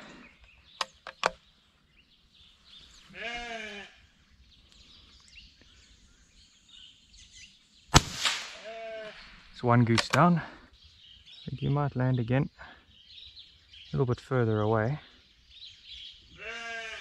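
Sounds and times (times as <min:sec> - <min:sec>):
sheep bleating: 0:03.1 - 0:04.0, 0:16.3 - 0:17.0
sharp clicks: 0:09.8 - 0:10.4.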